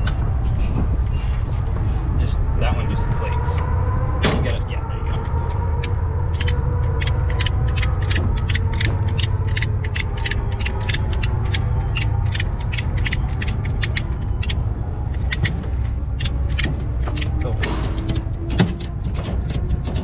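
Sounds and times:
low rumble: 0.0s - 20.0s
ratchet wrench clicking: 5.8s - 14.6s.

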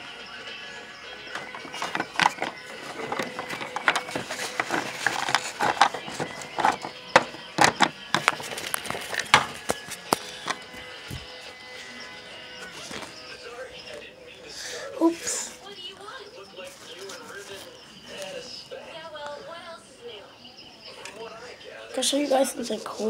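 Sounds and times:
faint music: 0.0s - 23.0s
plastic toy clicks and knocks: 1.4s - 10.6s.

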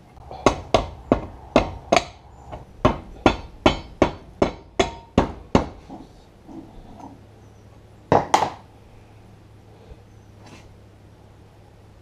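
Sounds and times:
hammer striking metal: 0.3s - 5.8s.

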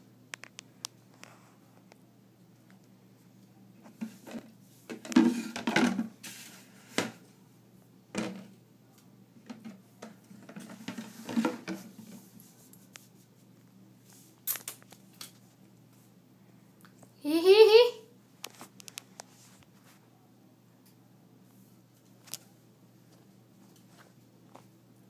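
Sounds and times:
rabbit rustling and scraping: 3.2s - 7.4s, 9.6s - 14.4s, 18.4s - 20.1s, 21.4s - 24.8s.

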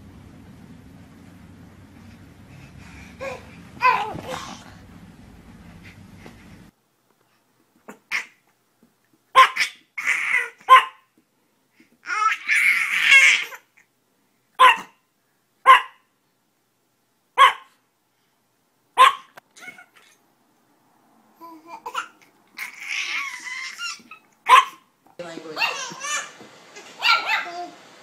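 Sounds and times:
baby squealing and laughing: 3.2s - 4.6s, 9.4s - 10.7s, 12.0s - 13.7s, 19.5s - 20.2s, 21.4s - 24.8s, 25.6s - 27.6s
small dog yapping: 3.2s - 4.6s, 9.3s - 11.1s, 14.6s - 15.0s, 15.6s - 16.1s, 17.4s - 17.8s, 19.0s - 20.2s, 21.9s - 24.9s, 25.6s - 27.7s.

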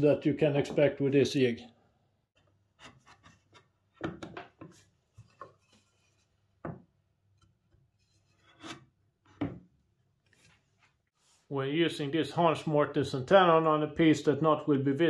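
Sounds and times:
wooden knocks and scrapes: 2.4s - 11.4s.

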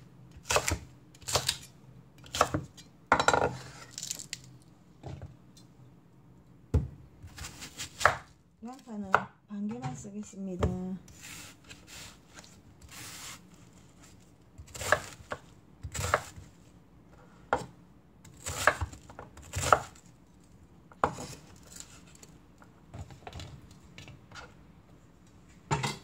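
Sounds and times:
knife chopping on wooden board: 0.5s - 1.6s, 6.7s - 8.3s, 14.7s - 16.4s, 18.3s - 19.9s.

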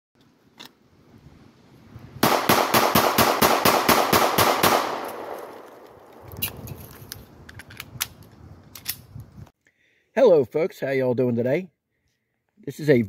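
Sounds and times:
rapid pistol shots: 2.2s - 5.5s.

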